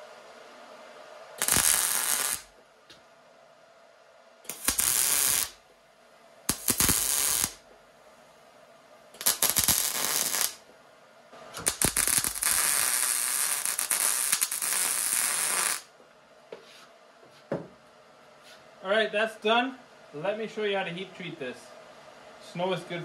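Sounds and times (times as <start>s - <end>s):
welder arc crackling: 1.4s - 2.6s, 4.5s - 5.6s, 6.5s - 7.6s, 9.2s - 10.6s, 11.6s - 15.9s.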